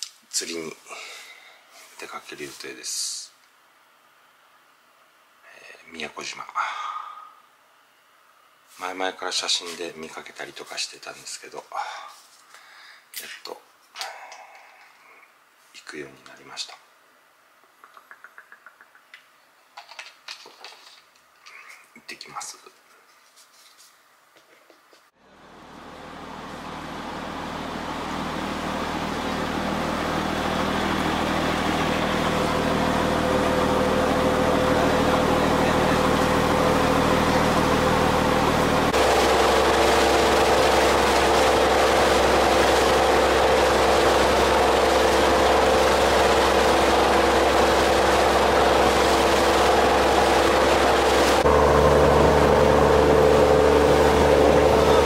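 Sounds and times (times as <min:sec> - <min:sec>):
boat engine running: 0:26.2 - 0:55.0.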